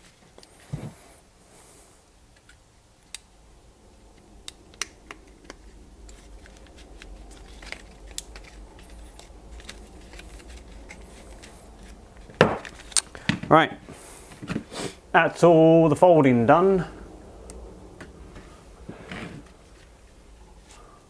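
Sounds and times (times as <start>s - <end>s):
faint low hum: 0.0s - 21.0s
bark strips clicking and crackling: 4.1s - 13.2s.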